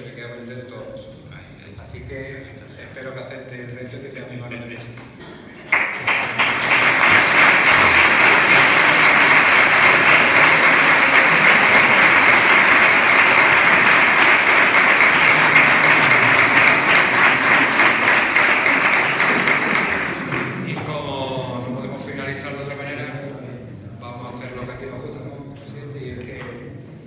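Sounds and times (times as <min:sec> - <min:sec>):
congregation applauding: 0:05.6 - 0:21.3.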